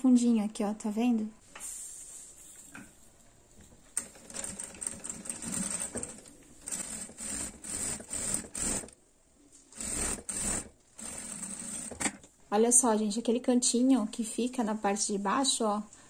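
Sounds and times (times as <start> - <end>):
sewing machine stitching: 4.0 - 9.0, 9.7 - 12.2.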